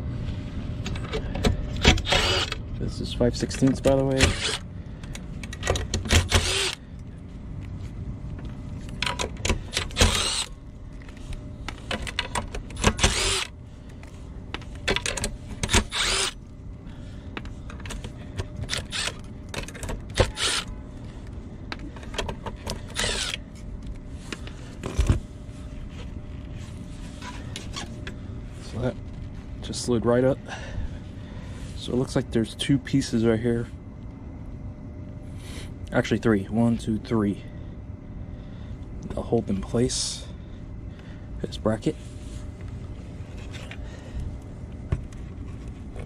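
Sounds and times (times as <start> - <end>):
cordless drill whirring: 1.8 - 2.6, 4.3 - 4.6, 6.1 - 6.8, 9.7 - 10.6, 12.8 - 13.6, 15.7 - 16.4, 18.7 - 19.2, 20.1 - 20.7, 22.8 - 23.4.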